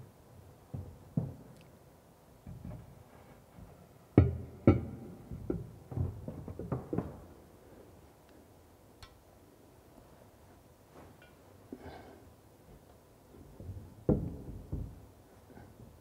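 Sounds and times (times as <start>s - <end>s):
light knocks and clatter: 0.6s - 1.7s, 2.4s - 7.4s, 12.6s - 16.0s.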